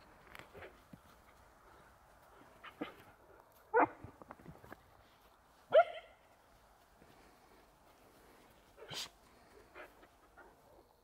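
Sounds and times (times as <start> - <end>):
puppy barking: 5.7 - 6.2.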